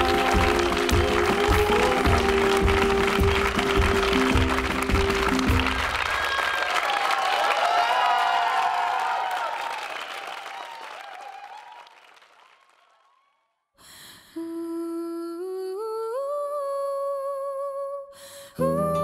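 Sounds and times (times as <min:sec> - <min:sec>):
person humming a melody: 0:00.0 - 0:05.5, 0:14.4 - 0:19.0
guitar song: 0:00.0 - 0:06.0, 0:18.6 - 0:19.0
music: 0:00.0 - 0:06.1, 0:18.6 - 0:19.0
applause: 0:00.0 - 0:13.4.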